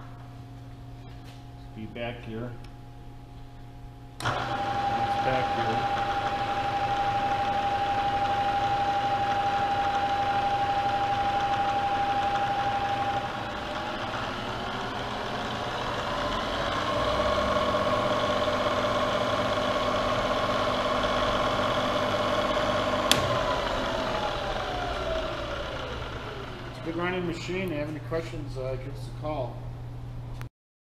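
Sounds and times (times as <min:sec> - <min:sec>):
milling machine gear whine: 0:04.2 - 0:27.4
sharp click: 0:23.1 - 0:23.5.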